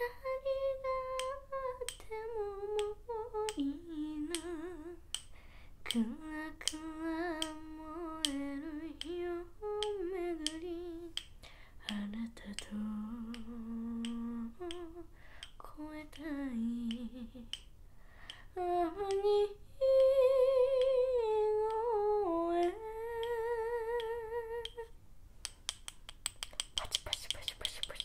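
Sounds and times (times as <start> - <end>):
chalk sticks tapping: 25.5 - 28.0.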